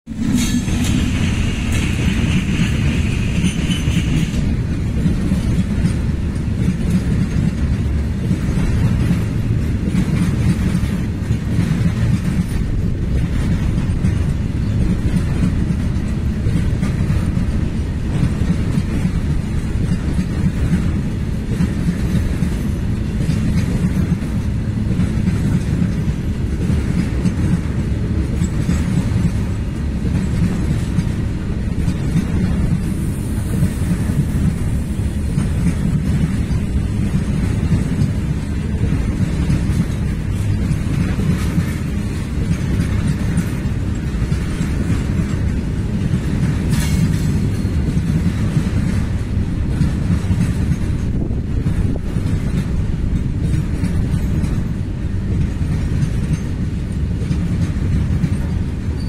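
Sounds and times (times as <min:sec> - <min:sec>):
freight train rumbling past: 0:00.0 - 0:59.0
locomotive hiss: 0:00.1 - 0:04.6, 0:32.3 - 0:37.1
wheels clacking over rail joints: 0:00.1 - 0:59.0.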